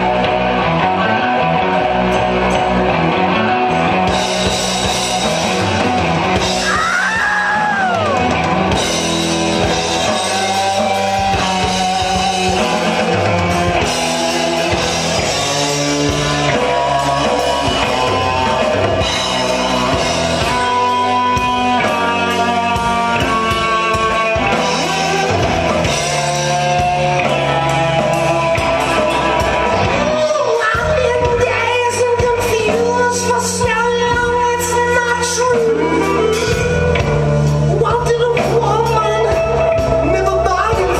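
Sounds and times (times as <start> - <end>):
live rock band playing: 0.0 - 40.9
lead vocal singing: 9.7 - 36.6.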